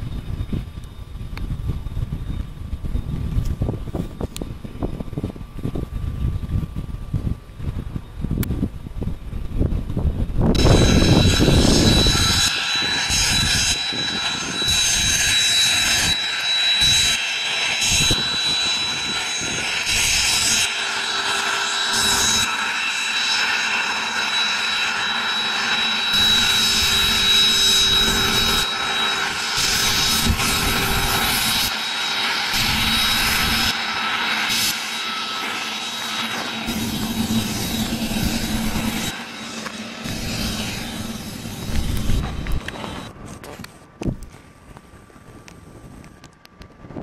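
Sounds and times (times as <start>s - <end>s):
jet engine whine: 0.0s - 47.0s
jet noise rushing: 9.4s - 43.2s.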